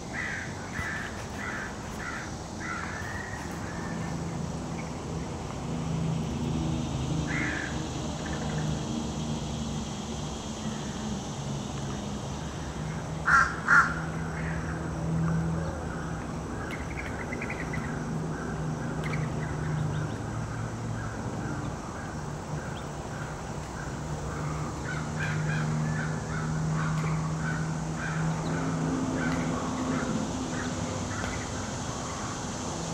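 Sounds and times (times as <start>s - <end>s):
crow calls: 0.1s - 4.0s, 7.3s - 7.8s, 13.2s - 14.7s.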